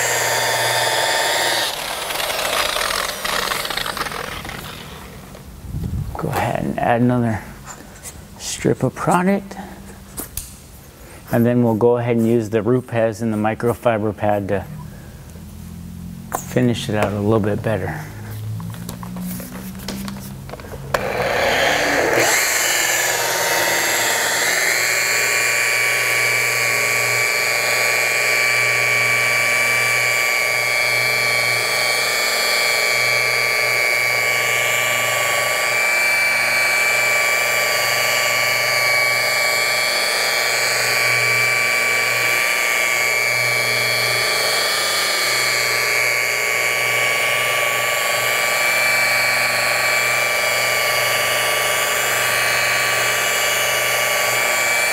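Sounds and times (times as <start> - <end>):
electric polisher whining: 0.0 - 5.5, 18.1 - 54.9.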